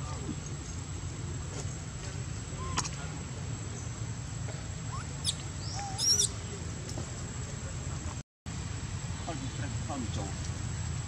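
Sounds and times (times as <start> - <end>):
infant monkey crying: 4.9 - 6.4.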